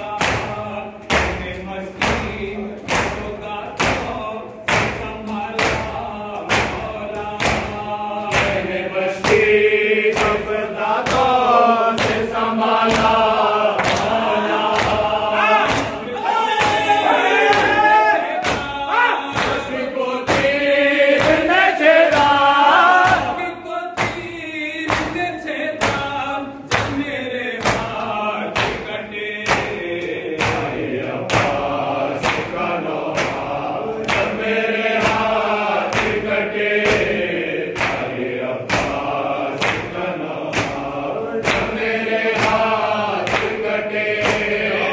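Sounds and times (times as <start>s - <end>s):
men chanting in unison: 0.0s - 44.9s.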